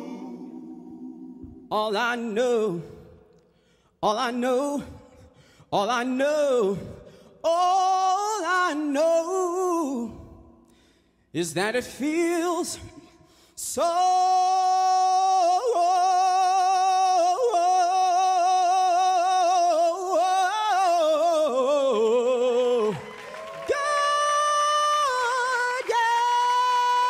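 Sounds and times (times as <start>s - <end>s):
man singing long vibrato notes: 23.7s - 27.0s.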